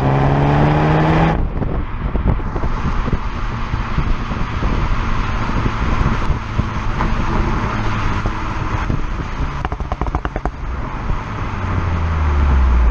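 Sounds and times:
car engine: 0.0 - 12.9
wind and road noise: 0.0 - 12.9
exhaust pops and crackles: 1.4 - 11.0.

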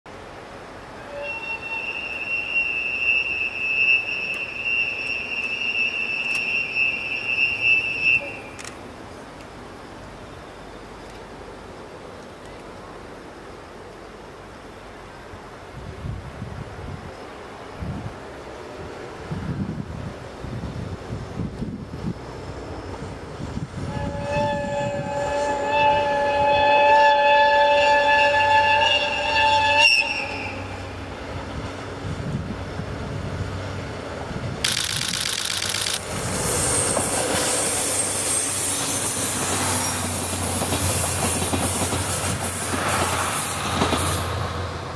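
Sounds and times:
two-tone locomotive horn: 1.0 - 8.6, 23.8 - 31.0.

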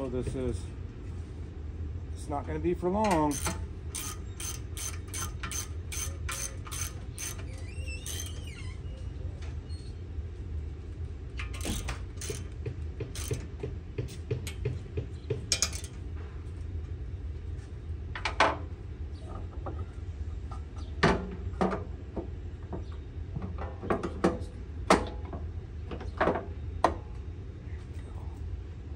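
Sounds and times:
ratchet wrench clicking: 3.1 - 8.4, 11.4 - 13.5
sharp metal knocks: 11.5 - 13.5.

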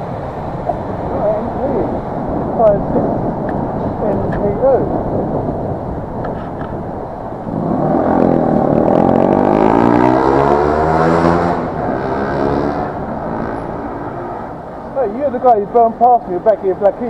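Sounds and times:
road noise: 0.0 - 17.0
wind: 0.0 - 17.0
vehicle engine accelerating: 7.4 - 15.0.

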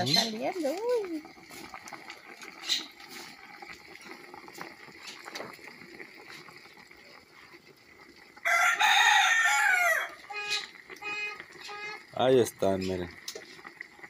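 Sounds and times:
water bubbling in pot: 0.0 - 14.0
rooster crowing: 8.4 - 10.6.

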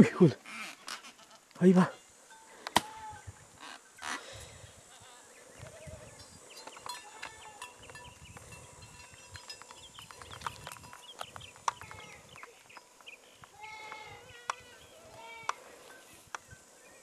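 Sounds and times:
goats bleating: 13.5 - 15.6.

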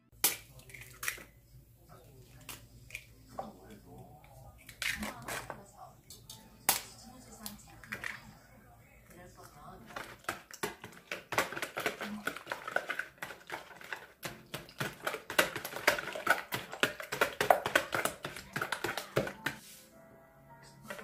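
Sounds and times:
soft music: 5.6 - 10.0, 17.9 - 21.0
whisk tapping plastic bowl: 9.8 - 19.7.

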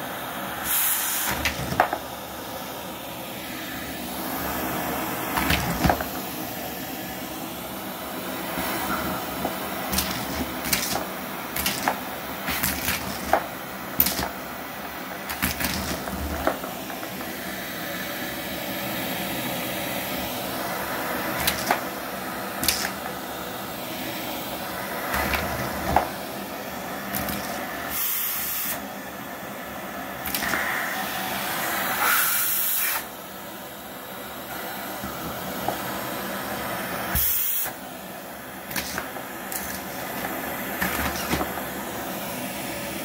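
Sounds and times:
vacuum cleaner running: 0.0 - 43.0
vacuum hiss: 0.0 - 43.0
toys clattering into vacuum hose: 9.4 - 14.4, 22.6 - 23.1, 27.1 - 27.6, 38.7 - 41.6.

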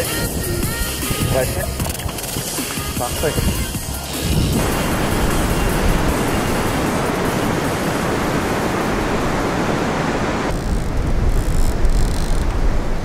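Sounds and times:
low wind rumble: 0.0 - 13.0
wind on microphone: 0.0 - 13.0
surf rushing on beach: 4.2 - 11.3.

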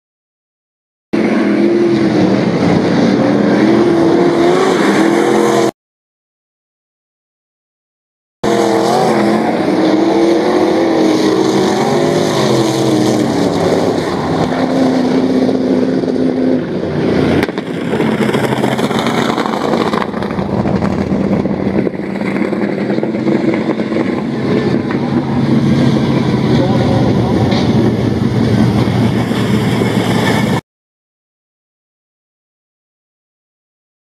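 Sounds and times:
race car engines revving: 1.2 - 5.7, 8.4 - 30.6.

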